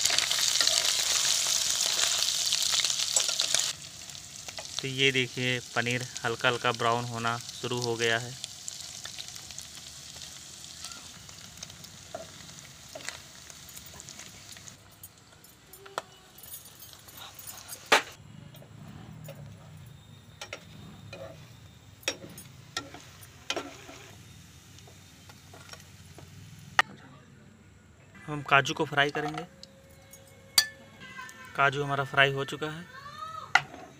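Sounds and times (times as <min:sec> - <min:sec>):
food sizzling in oil: 0:00.0 - 0:15.4, 0:20.4 - 0:26.8.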